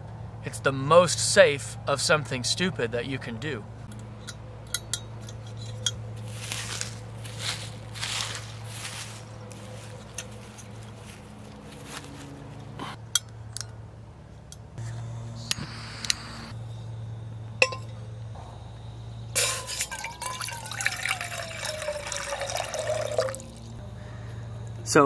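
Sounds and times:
water pouring into steel pot: 19.4 - 23.7.

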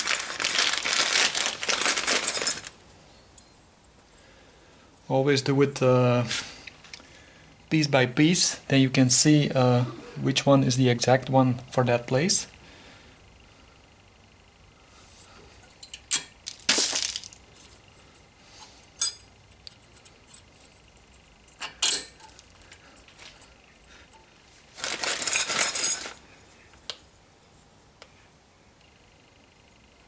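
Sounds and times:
metal clips scraping: 21.5 - 23.5, 24.9 - 26.2.

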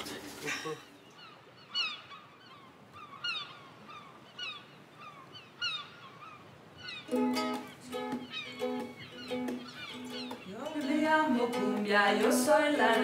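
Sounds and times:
birds calling: 0.5 - 11.2
music with held notes: 7.1 - 13.0.

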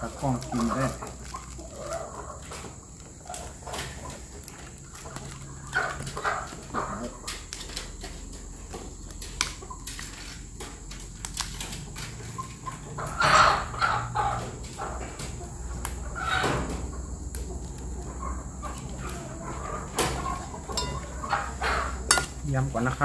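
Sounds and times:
chickens clucking: 0.0 - 23.0
chicken squawking: 12.4 - 16.6, 17.6 - 22.1.

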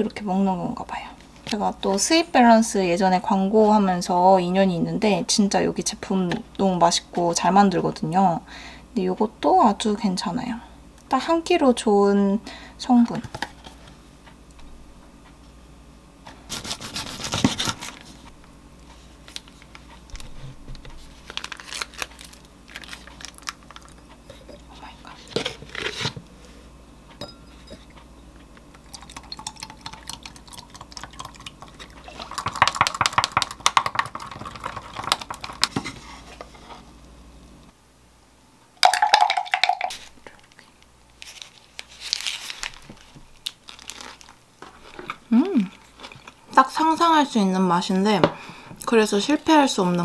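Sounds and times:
cardboard packaging rustling: 16.5 - 18.2, 19.3 - 24.0, 41.2 - 45.2.

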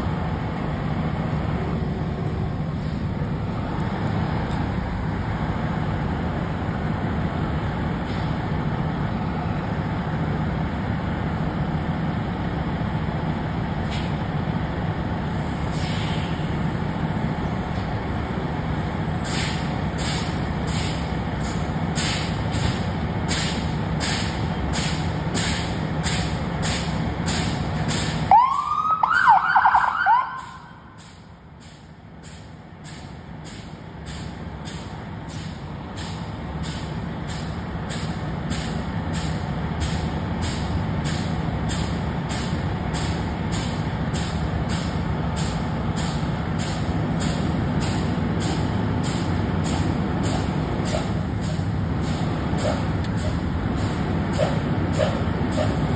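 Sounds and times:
diesel engines idling: 0.0 - 55.9
siren whoops: 28.3 - 30.8.

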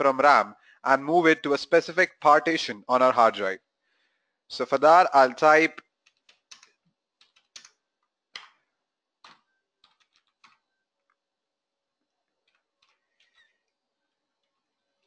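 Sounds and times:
keyboard typing: 6.0 - 11.1, 12.4 - 15.0.

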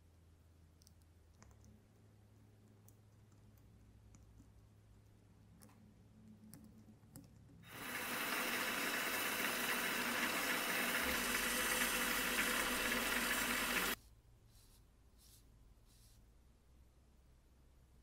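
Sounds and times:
lathe motor humming: 7.7 - 14.0.

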